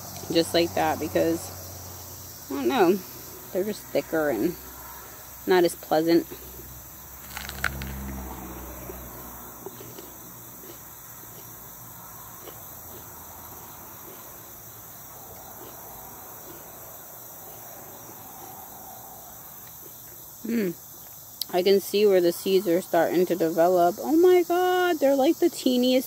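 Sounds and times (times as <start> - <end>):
insects chirring: 0.0 - 26.0
crunchy pepper being chewed: 7.2 - 18.6.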